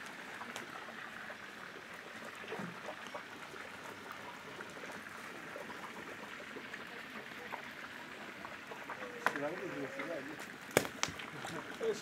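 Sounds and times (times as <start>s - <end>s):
water-like rushing noise: 0.0s - 12.0s
faint voices: 6.5s - 10.5s.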